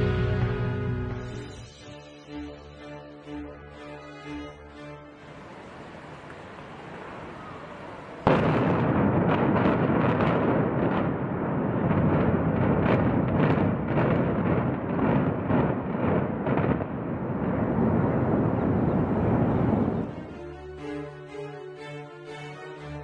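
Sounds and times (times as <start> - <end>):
explosive blast: 8.2 - 20.1
heavy rumble of building collapse: 8.2 - 20.1.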